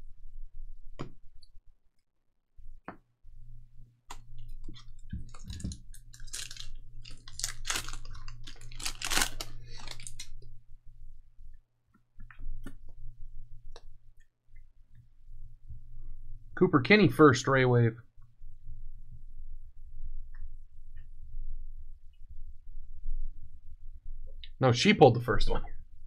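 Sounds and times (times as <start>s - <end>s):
low steady hum: 0.0s - 1.8s, 2.6s - 26.0s
card packs crinkling: 4.8s - 10.4s.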